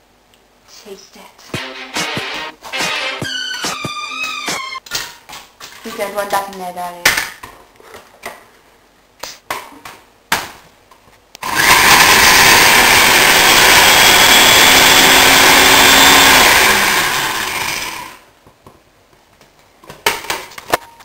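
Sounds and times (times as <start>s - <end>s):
blender motor running: 11.4s - 18.2s.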